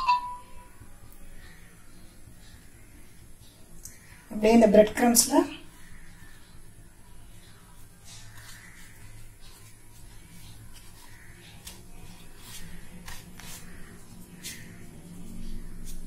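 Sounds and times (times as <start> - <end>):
breadcrumbs crackling: 7.4 - 16.0.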